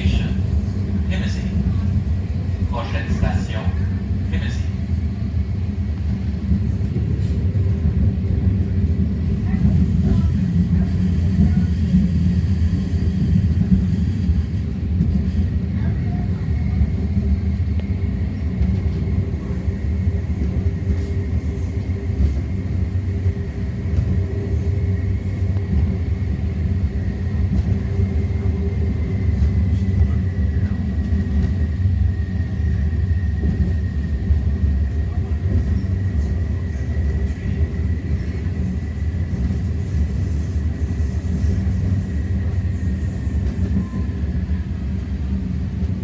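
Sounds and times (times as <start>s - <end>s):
light rail car rumbling on track: 0.0s - 46.0s.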